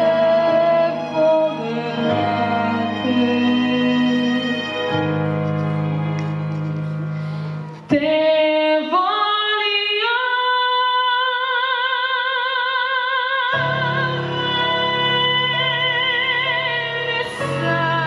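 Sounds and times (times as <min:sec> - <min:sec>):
orchestral backing track: 0:00.0 - 0:08.2.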